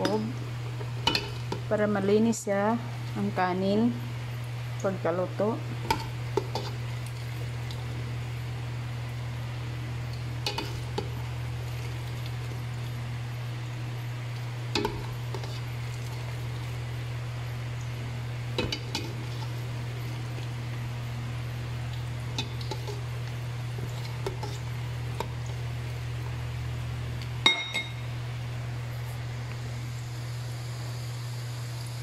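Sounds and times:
steady low hum: 0.0s - 32.0s
metal utensil clinking on pot: 27.5s - 28.0s.

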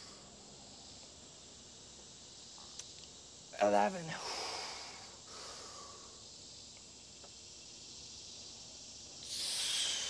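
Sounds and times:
man breathing hard: 4.2s - 6.2s, 9.2s - 10.0s.

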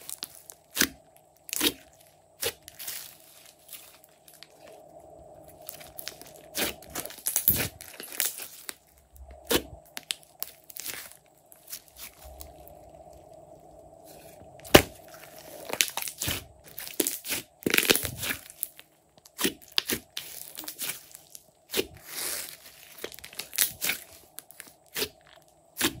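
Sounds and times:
sticky slime tearing: 0.0s - 4.7s, 5.6s - 8.8s, 14.6s - 26.0s
slime popping and crackling: 5.6s - 8.8s, 14.6s - 26.0s.

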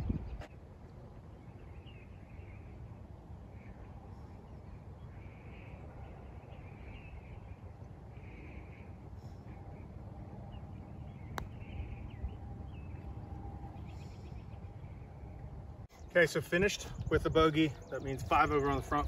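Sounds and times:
wind rumble on microphone: 0.0s - 4.1s, 8.9s - 15.9s, 16.5s - 19.0s
faint bird calls: 3.4s - 16.2s.

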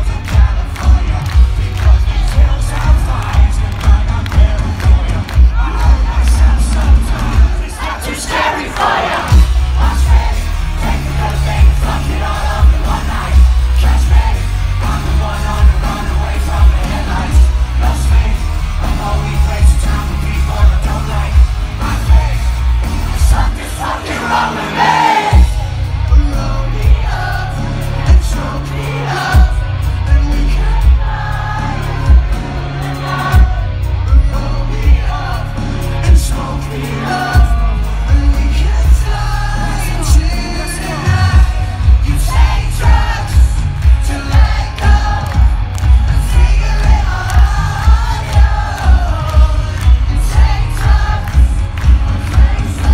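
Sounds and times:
crowd shouting along: 0.0s - 19.4s, 20.9s - 29.8s, 40.9s - 52.9s
live band playing loudly: 0.0s - 52.9s
person singing: 0.0s - 52.9s.

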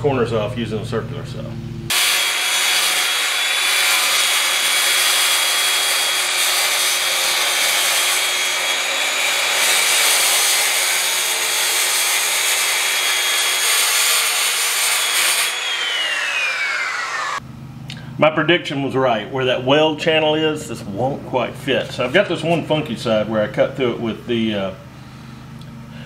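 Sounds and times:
circular saw cutting wood: 1.9s - 17.4s.

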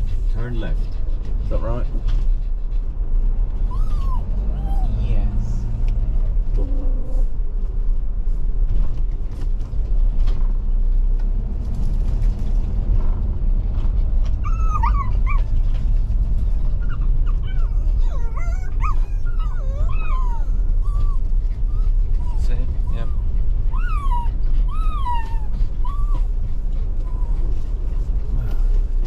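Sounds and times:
wind rumble on microphone: 0.0s - 29.0s
dog whining and yipping: 3.6s - 5.0s, 14.4s - 15.7s, 16.6s - 28.9s.

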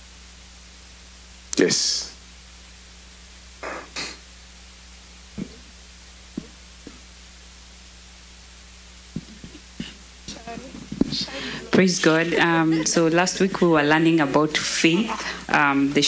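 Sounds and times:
microphone line hiss and hum: 0.0s - 16.0s
short noise bursts: 3.5s - 4.4s.

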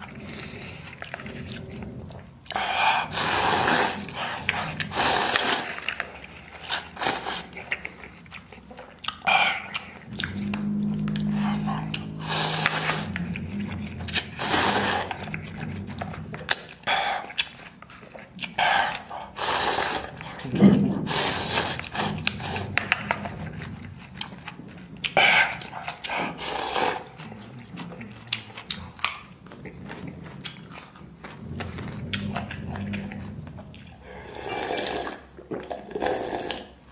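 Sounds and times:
chewing: 0.0s - 36.9s
person slurping noodles: 2.6s - 5.8s, 6.6s - 7.6s, 9.6s - 13.5s, 14.1s - 15.8s, 18.9s - 22.8s, 25.4s - 27.6s, 34.0s - 36.8s.

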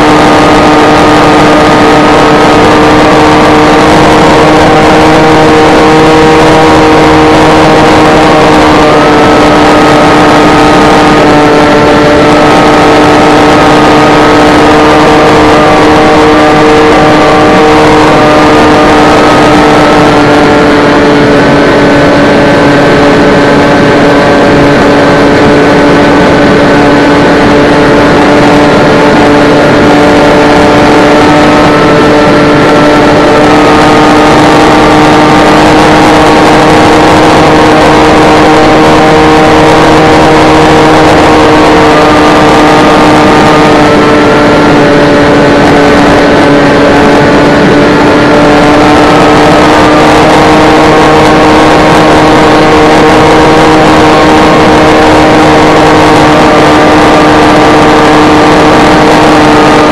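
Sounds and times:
model plane motor and propeller drone: 0.0s - 59.9s
wind rush on microphone: 0.0s - 59.9s.

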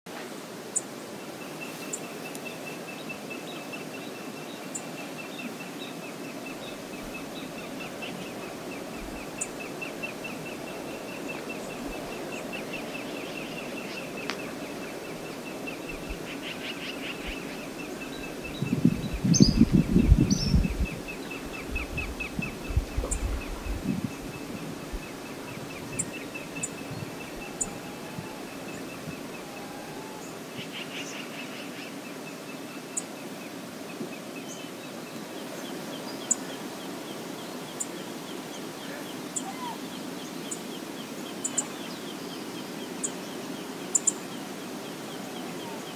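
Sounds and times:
river water rushing: 0.2s - 19.2s, 20.8s - 45.9s
wind buffeting microphone: 17.2s - 29.4s.

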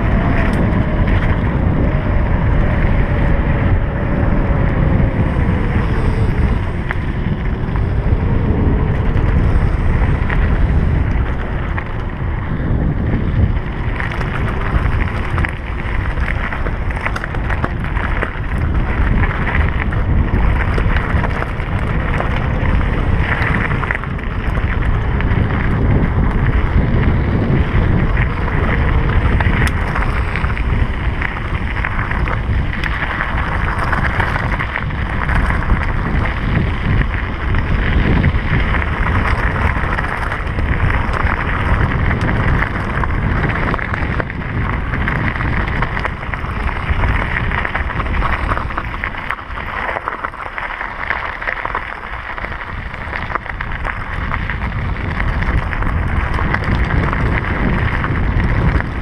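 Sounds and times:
bike rattling: 0.0s - 59.0s
tyres crunching on gravel: 0.0s - 59.0s
wind buffeting microphone: 0.0s - 59.0s.

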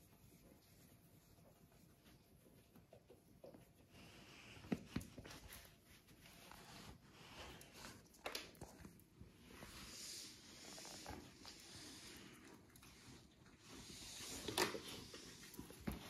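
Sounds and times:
puppy moving on cork floor: 0.0s - 16.0s.

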